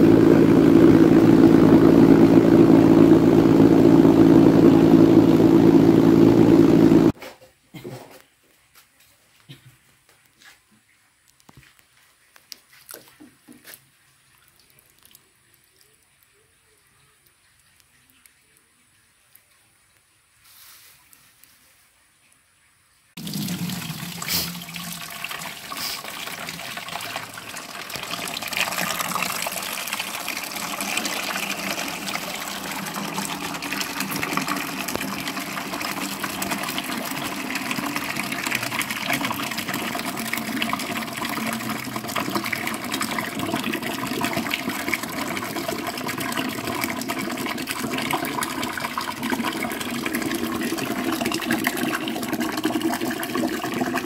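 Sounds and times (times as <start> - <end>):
slurry pouring into plastic bucket: 23.2 - 54.0.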